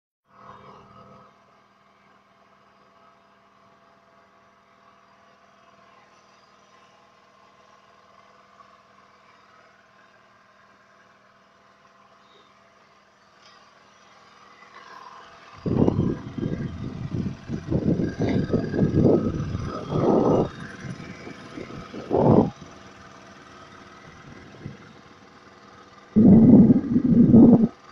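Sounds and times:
faint engine drone: 0.3s - 27.9s
loud uneven rumbling: 26.2s - 27.8s.

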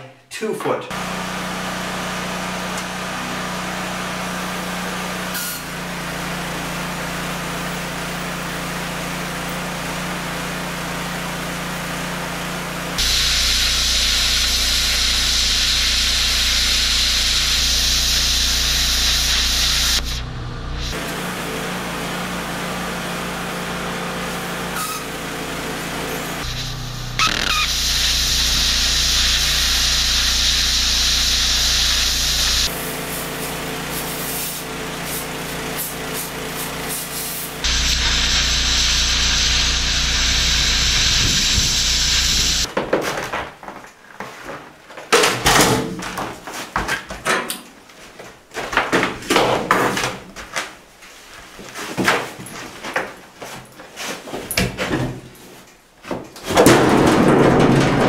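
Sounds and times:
plasma cutter hissing: 13.0s - 21.0s, 26.1s - 42.7s
metal knocks and clatter: 56.2s - 58.0s.

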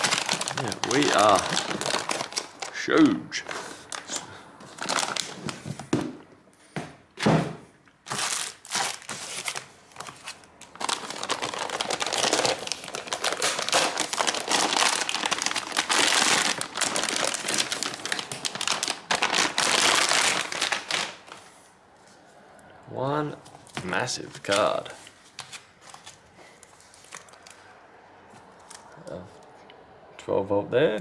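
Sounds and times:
plastic bag crinkling: 0.0s - 5.9s, 8.0s - 21.5s.

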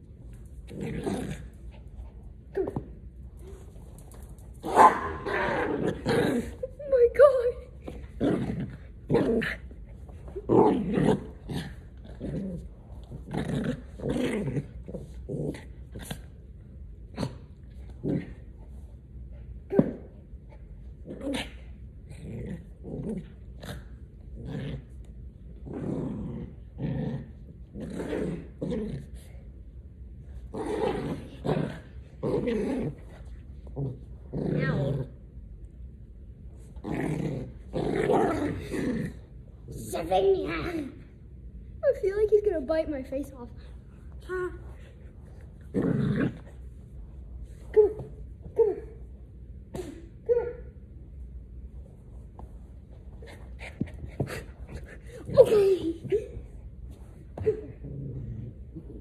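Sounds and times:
small dog play-growling: 0.2s - 29.6s, 30.2s - 35.3s, 36.5s - 41.1s, 43.6s - 50.0s, 51.8s - 59.0s
small dog barking: 4.7s - 5.4s.

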